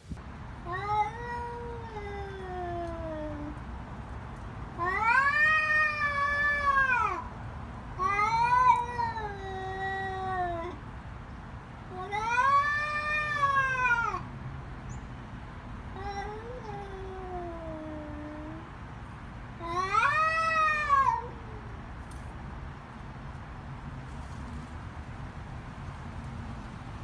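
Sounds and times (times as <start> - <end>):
cats yowling: 0.7 - 3.5, 4.8 - 7.3, 8.0 - 10.8, 11.9 - 14.3, 16.0 - 18.6, 19.6 - 21.8.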